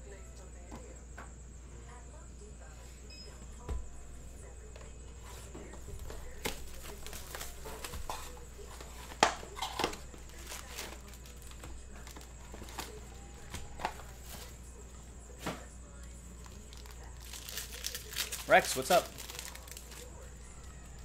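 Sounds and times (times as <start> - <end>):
foil card packs rustling: 5.1 - 21.0
plastic shrink wrap crinkling: 5.9 - 14.6, 16.4 - 21.0.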